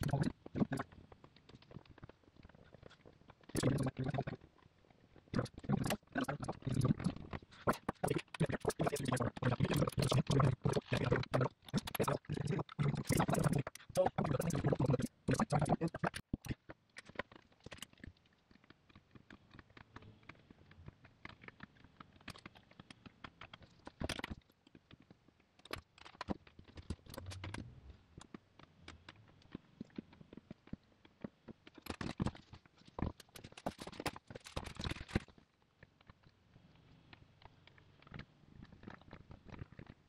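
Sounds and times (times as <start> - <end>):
plastic pieces and tools clicking: 5.4 - 40.0.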